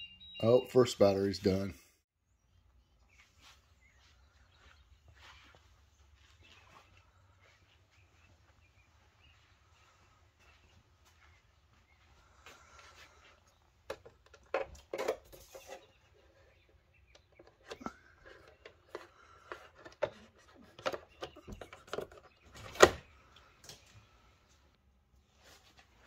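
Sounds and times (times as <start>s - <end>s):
handling clicks and taps: 13.8s - 15.5s, 17.0s - 22.9s.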